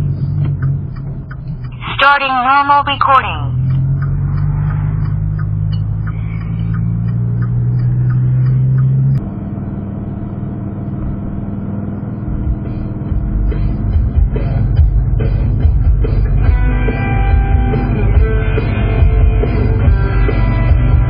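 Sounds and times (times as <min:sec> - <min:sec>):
car engine drone: 0:00.0 - 0:21.0
light ticking: 0:00.1 - 0:01.8, 0:03.6 - 0:09.2.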